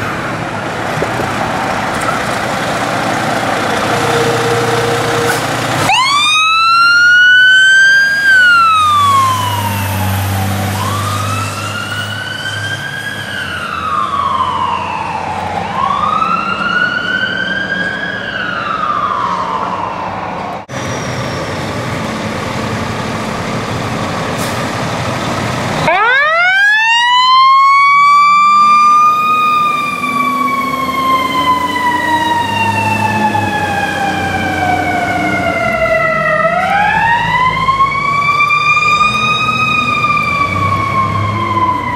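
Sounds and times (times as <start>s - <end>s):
mechanical siren wailing: 3.8s - 20.6s, 25.8s - 41.9s.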